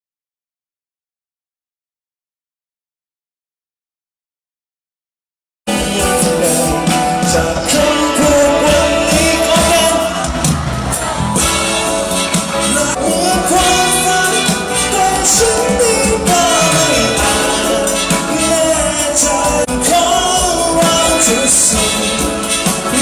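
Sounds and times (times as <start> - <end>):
man singing: 5.7 - 10.4, 11.4 - 23.0
horn section: 5.7 - 23.0
live band over loudspeakers: 5.7 - 23.0.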